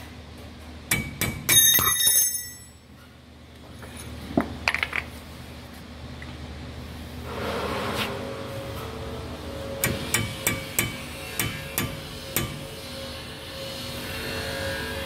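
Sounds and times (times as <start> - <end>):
hammer striking metal: 0.9 - 2.8, 9.8 - 12.8.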